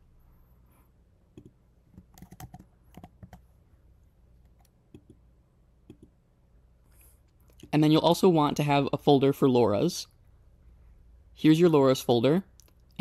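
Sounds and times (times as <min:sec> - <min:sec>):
mouse clicks: 0:01.3 - 0:03.4, 0:05.8 - 0:06.2
keyboard keystrokes: 0:01.4 - 0:03.4.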